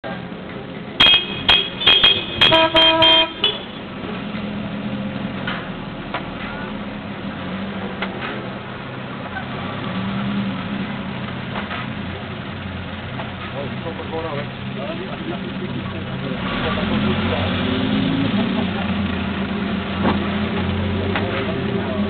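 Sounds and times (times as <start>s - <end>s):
car horn toots: 1.0s - 3.9s.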